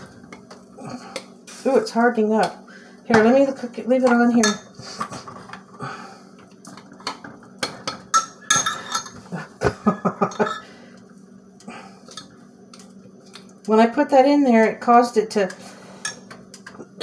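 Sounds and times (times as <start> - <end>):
spoon clinking in metal pot: 8.1 - 9.1.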